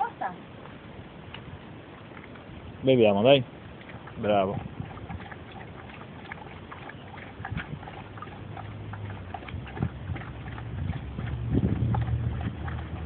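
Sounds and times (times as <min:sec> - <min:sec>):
dog lapping water: 0:03.2 - 0:13.0
low hum: 0:03.8 - 0:13.0.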